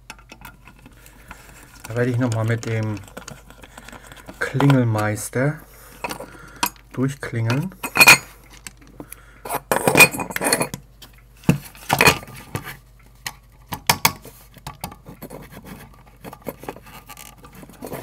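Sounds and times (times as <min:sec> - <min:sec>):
small metal parts clinking: 0:07.8 - 0:08.3.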